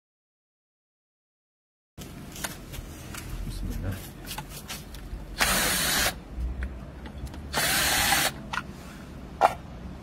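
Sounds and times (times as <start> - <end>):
cordless drill running: 5.4 - 6.2, 7.5 - 8.4.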